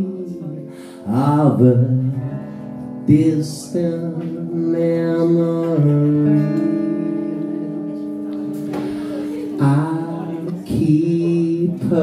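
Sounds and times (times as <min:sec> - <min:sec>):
man singing: 0:00.0 - 0:08.1, 0:09.0 - 0:12.0
acoustic guitar strumming: 0:00.0 - 0:12.0.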